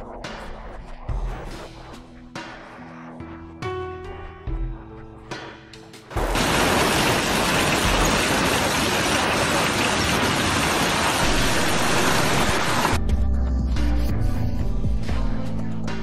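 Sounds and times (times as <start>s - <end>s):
background music: 0.0s - 9.1s, 11.2s - 16.0s
heavy rain and wind: 6.2s - 13.0s.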